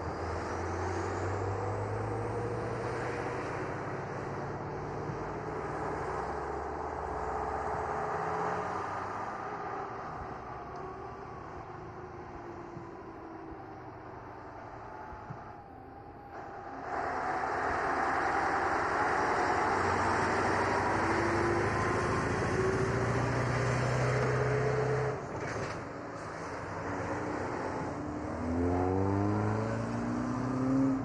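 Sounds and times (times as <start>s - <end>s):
diesel truck driving past: 16.2s - 31.0s.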